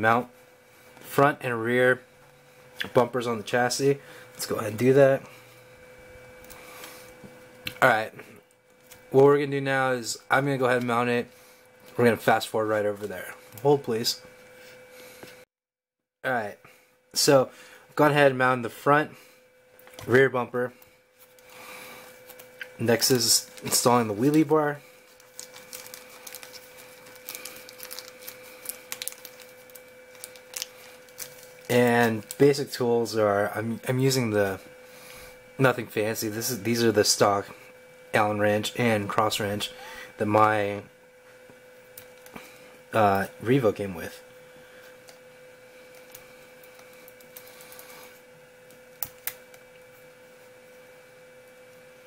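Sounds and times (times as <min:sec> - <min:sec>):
faint steady hum: 0:00.0 - 0:15.5, 0:16.2 - 0:52.0
plastic bag crinkling: 0:22.2 - 0:32.6, 0:45.9 - 0:48.2.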